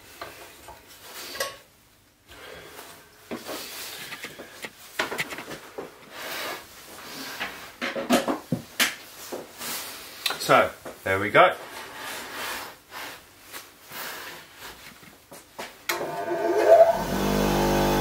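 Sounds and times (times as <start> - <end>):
knocks and clatter on workbench: 4.1 - 6.0, 7.8 - 9.0.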